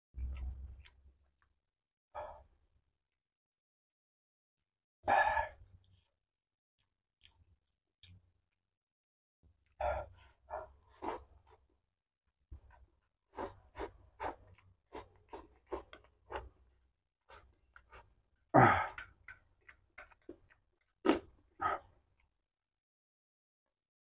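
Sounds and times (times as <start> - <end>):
noodles slurped and chewed: 10.9 - 11.7, 12.6 - 22.2
wet mouth clicks and smacks: 18.9 - 21.3.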